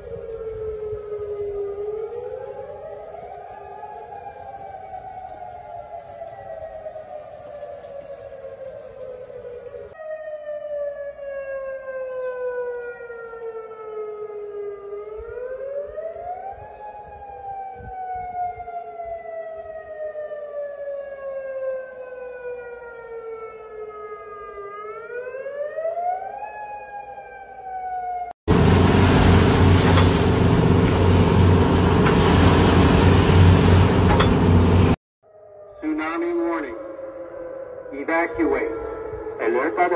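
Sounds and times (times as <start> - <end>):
warning siren wailing: 0.0 - 39.9
loud even noise roar: 28.5 - 35.0.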